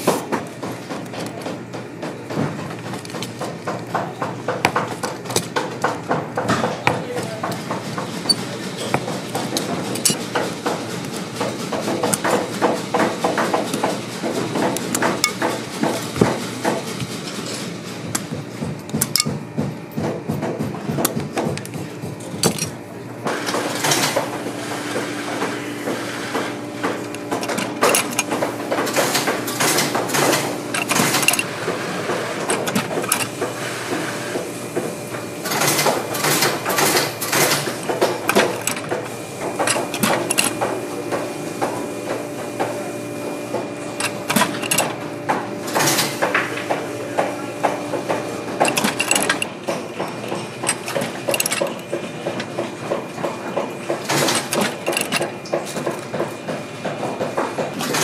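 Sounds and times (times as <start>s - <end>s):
steady hum: 0.0s - 57.7s
metallic clicks and clunks: 48.6s - 52.7s, 54.0s - 56.0s.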